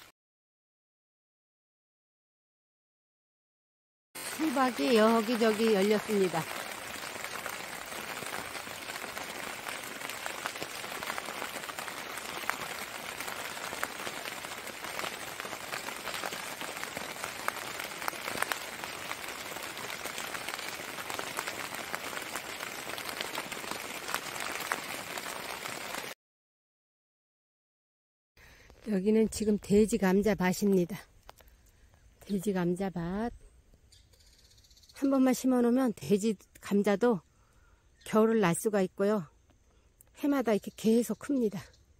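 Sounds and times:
rain pattering: 0:04.2 - 0:26.2, 0:30.5 - 0:31.6.

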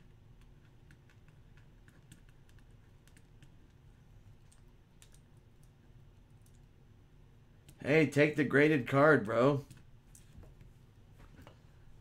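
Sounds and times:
computer keyboard typing: 0:00.4 - 0:03.8, 0:04.4 - 0:05.8.

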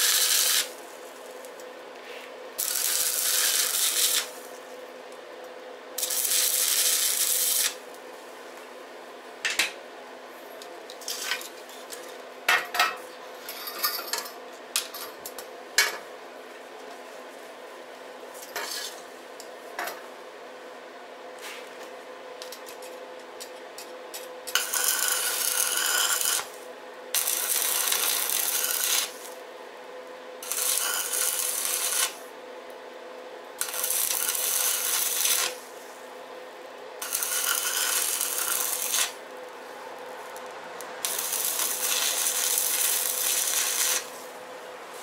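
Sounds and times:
arc welder crackling and hissing: 0:00.0 - 0:08.8, 0:10.3 - 0:12.3, 0:18.3 - 0:19.8, 0:21.3 - 0:29.6, 0:30.2 - 0:45.0.

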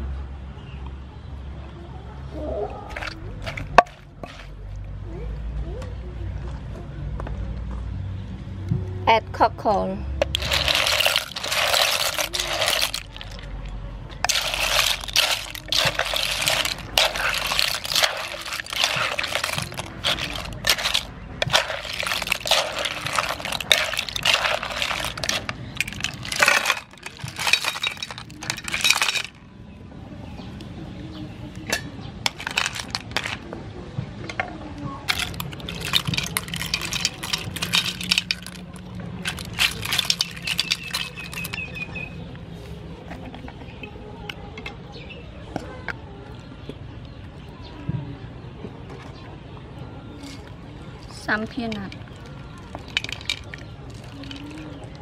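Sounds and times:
shells clattering in wooden mortar: 0:02.9 - 0:04.6, 0:10.2 - 0:29.4, 0:32.2 - 0:33.4, 0:35.1 - 0:41.9, 0:51.4 - 0:55.0.

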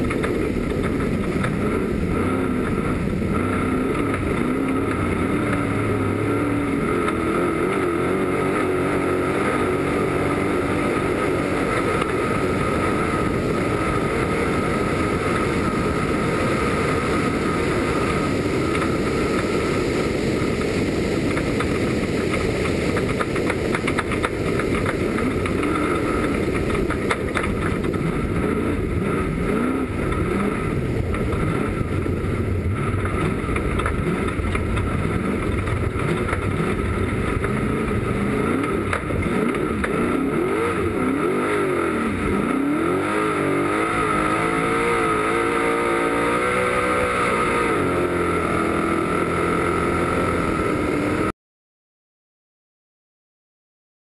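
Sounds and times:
truck engine revving: 0:00.0 - 0:19.9, 0:20.5 - 0:51.3
wind and road noise: 0:00.0 - 0:51.3.

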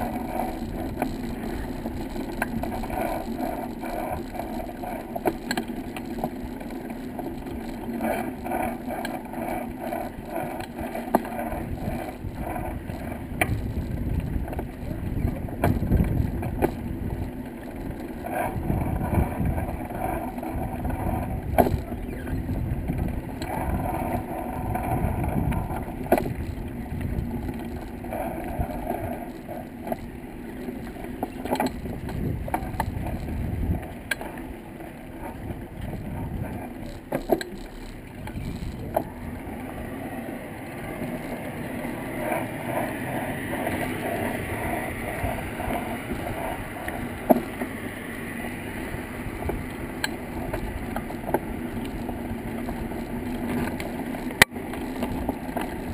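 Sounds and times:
engine hum: 0:00.0 - 0:55.9
wind buffeting microphone: 0:09.3 - 0:39.9, 0:42.3 - 0:47.8, 0:55.0 - 0:55.9.

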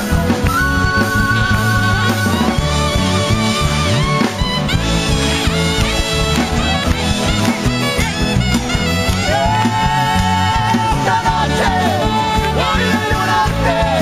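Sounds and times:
bass and drum groove: 0:00.0 - 0:14.0
gliding lead melody: 0:00.0 - 0:14.0
live band playing: 0:00.0 - 0:14.0.

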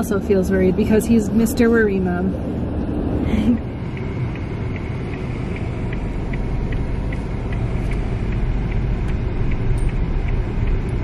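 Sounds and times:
car engine and road rumble: 0:00.0 - 0:11.0
turn signal ticking: 0:03.4 - 0:11.0.

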